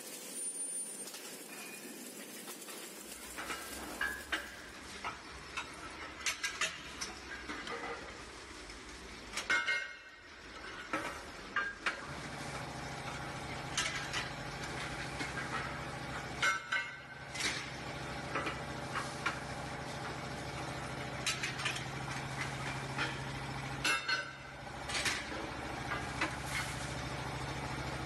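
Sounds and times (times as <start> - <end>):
metallic clinks and clanks: 0.0 - 8.1.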